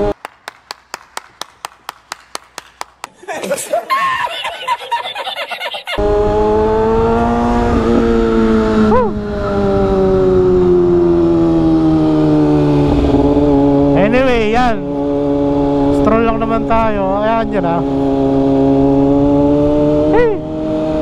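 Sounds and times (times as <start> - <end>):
man laughing: 3.1 - 6.0
motorcycle engine running: 6.0 - 21.0.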